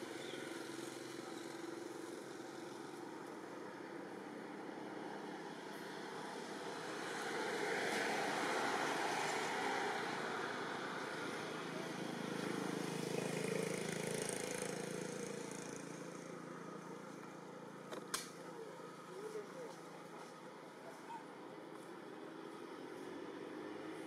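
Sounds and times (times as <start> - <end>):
outdoor background noise: 0.0 - 24.0
sharp click: 17.9 - 18.4.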